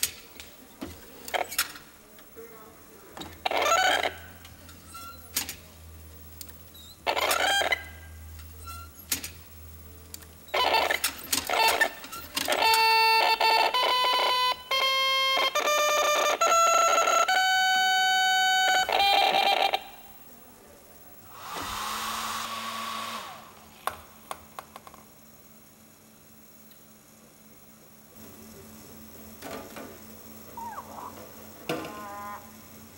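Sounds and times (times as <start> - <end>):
noisy whir: 0.0 - 32.9
buzzing tones playing a tune: 10.5 - 20.0, 31.7 - 32.9.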